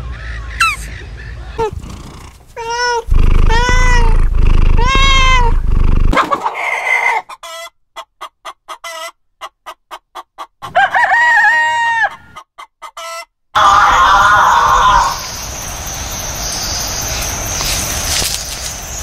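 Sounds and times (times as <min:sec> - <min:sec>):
rooster clucking: 0:00.6 - 0:14.8
cat meowing: 0:02.6 - 0:06.1
rooster crowing: 0:10.7 - 0:12.4, 0:13.6 - 0:15.3.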